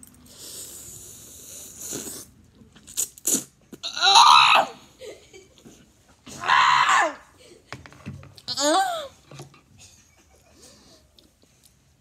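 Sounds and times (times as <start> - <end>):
noodles slurped noisily: 0.3 - 3.6.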